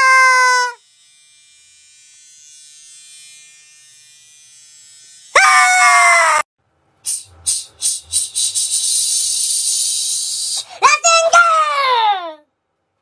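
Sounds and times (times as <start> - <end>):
man screaming: 0.0 - 0.8, 5.4 - 6.4.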